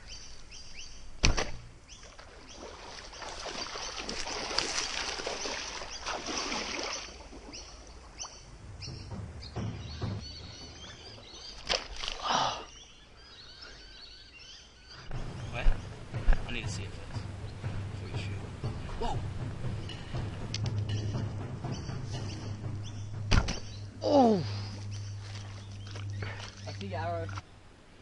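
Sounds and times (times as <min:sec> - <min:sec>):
splashing through pond water: 0:00.0 - 0:13.0, 0:15.1 - 0:27.5
sharp snap: 0:01.2 - 0:01.7, 0:23.3 - 0:23.8.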